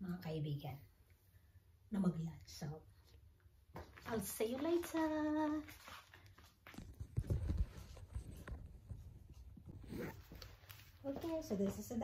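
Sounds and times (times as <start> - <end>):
soft footsteps: 3.6 - 12.0.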